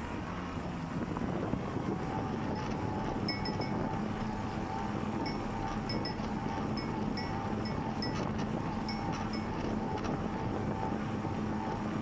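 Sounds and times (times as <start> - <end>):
faint wavering hum: 0.0 - 12.0
wind and tyre noise: 0.0 - 12.0.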